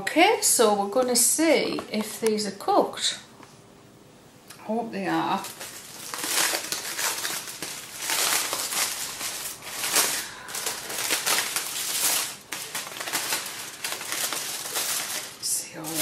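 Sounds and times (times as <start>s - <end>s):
aluminium foil crinkling: 5.1s - 16.0s.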